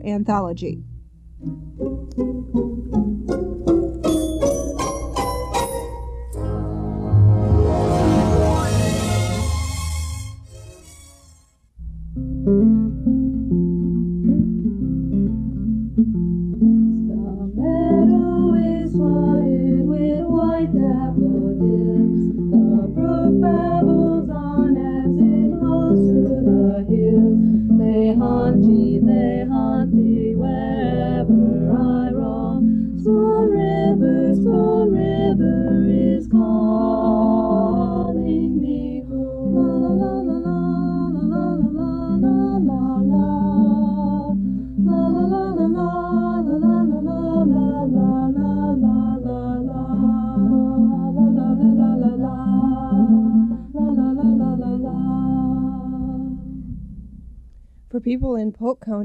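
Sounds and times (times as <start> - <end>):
acoustic guitar playing: 0.0 - 57.8
person singing: 17.1 - 56.7.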